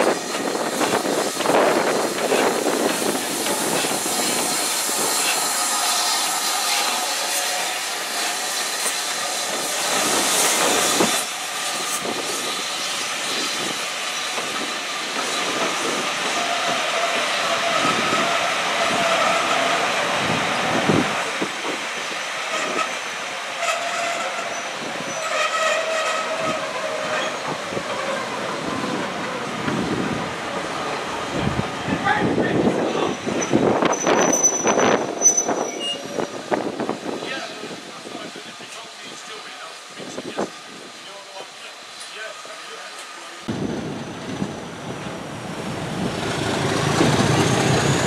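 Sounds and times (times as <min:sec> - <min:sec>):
train wheels clattering over rail joints: 0:00.0 - 0:19.9
steam hissing: 0:00.0 - 0:31.9
steam train passing: 0:00.0 - 0:48.0.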